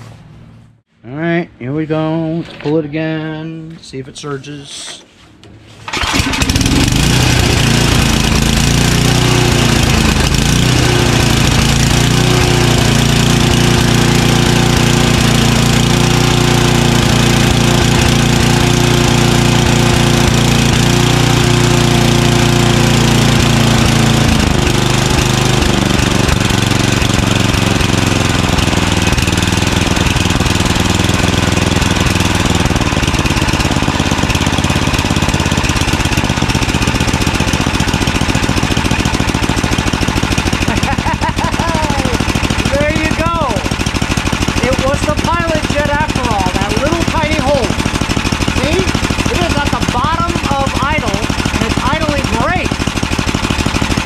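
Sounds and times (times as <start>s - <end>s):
recoil starter pull: 5.8s - 54.0s
snowblower engine running: 5.9s - 54.0s.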